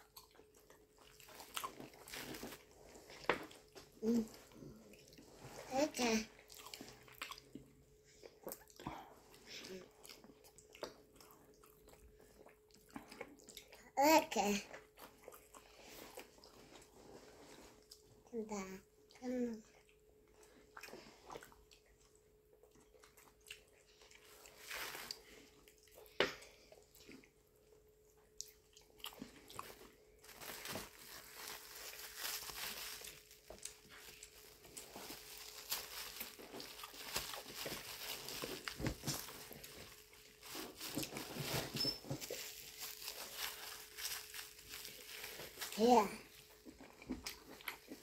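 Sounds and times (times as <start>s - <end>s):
chewing and mouth smacking: 0.0s - 2.1s, 6.4s - 8.9s, 9.9s - 13.8s, 14.7s - 16.6s, 19.8s - 24.6s, 28.2s - 29.8s, 46.6s - 48.0s.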